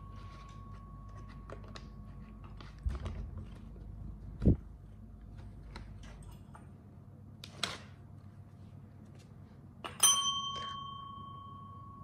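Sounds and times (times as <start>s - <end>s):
tap bell ringing: 9.8s - 12.0s.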